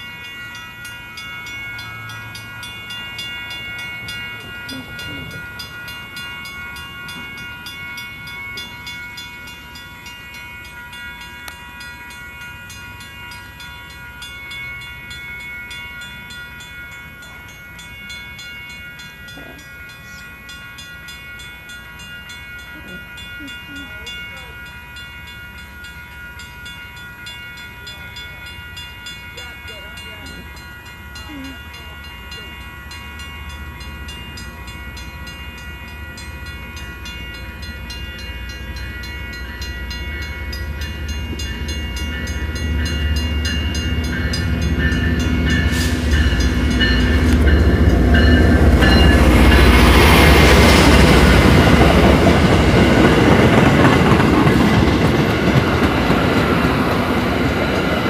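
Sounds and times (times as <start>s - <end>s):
train rumbling past: 0.0s - 58.0s
train wheels clattering on rails: 33.1s - 58.0s.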